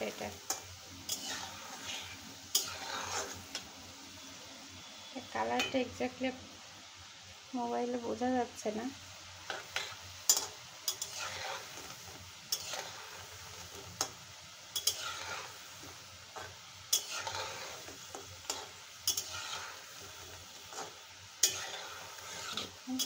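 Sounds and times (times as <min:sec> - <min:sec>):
food deep-frying in oil: 0:00.0 - 0:23.0
metal spatula scraping pan: 0:00.1 - 0:03.6, 0:09.4 - 0:23.0.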